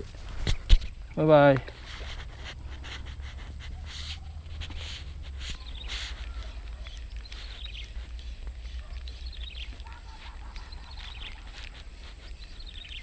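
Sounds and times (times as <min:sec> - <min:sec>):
small birds chirping: 0:00.1 - 0:13.0.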